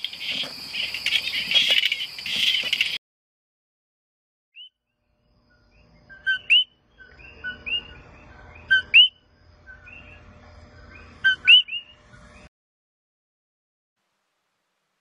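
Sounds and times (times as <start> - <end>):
faint frogs calling in background: 0.0 - 3.0, 4.6 - 12.5
frogs calling two-note calls: 6.1 - 8.1, 8.7 - 10.2.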